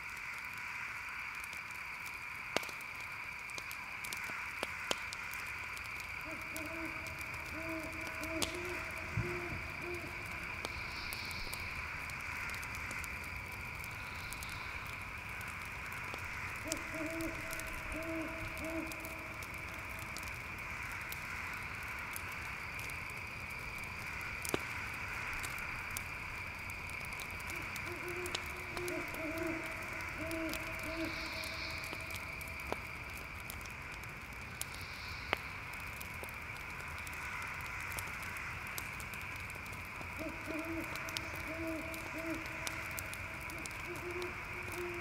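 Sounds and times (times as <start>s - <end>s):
crickets chirping: 0.0s - 45.0s
owl hooting: 6.2s - 11.6s, 16.6s - 19.3s, 27.5s - 32.2s, 40.2s - 42.7s, 43.5s - 45.0s.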